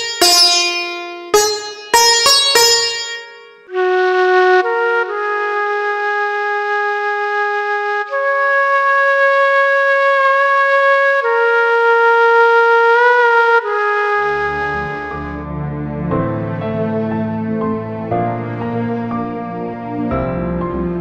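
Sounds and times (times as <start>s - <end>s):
slow melody of held notes: 13.1s - 21.0s.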